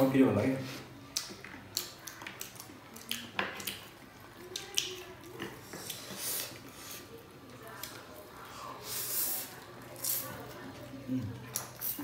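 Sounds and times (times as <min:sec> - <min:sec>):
chewing clicks: 0:01.1 - 0:06.0
lip smacks: 0:01.1 - 0:06.7.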